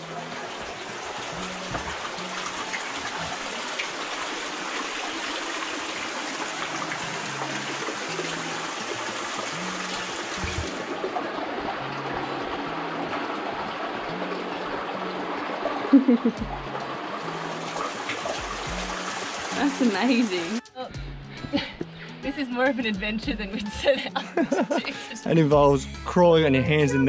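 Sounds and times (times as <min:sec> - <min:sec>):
waterfall and creek rushing: 0:00.0 - 0:20.6.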